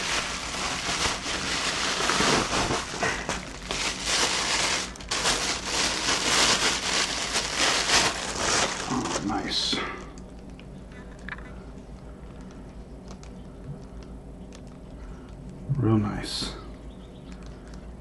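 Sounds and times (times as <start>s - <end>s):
bubble wrap and plastic crinkling: 0.0s - 11.4s.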